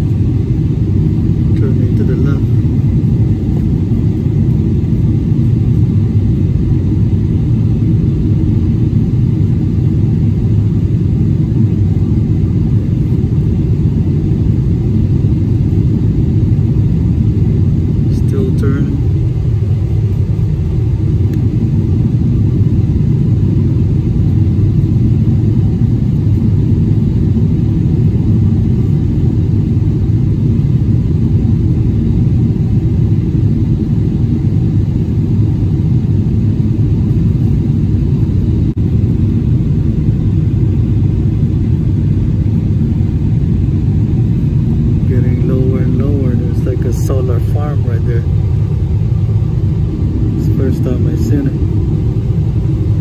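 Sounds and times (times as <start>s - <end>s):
airliner cabin engine roar: 0.0s - 53.0s.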